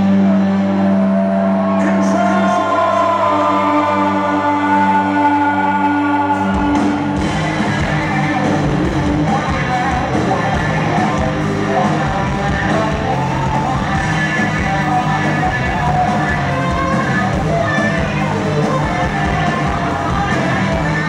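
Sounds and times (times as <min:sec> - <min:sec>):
distorted electric guitars: 0:00.0 - 0:21.0
drums: 0:00.0 - 0:21.0
live rock band playing: 0:00.0 - 0:21.0
person singing: 0:00.0 - 0:21.0.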